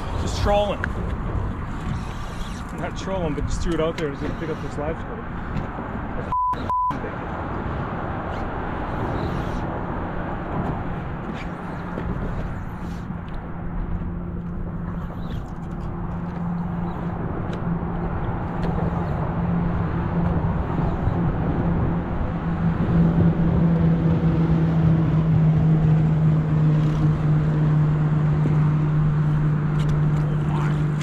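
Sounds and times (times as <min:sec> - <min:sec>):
boat motor humming: 0:00.0 - 0:31.0
wind rumble on microphone: 0:07.0 - 0:31.0.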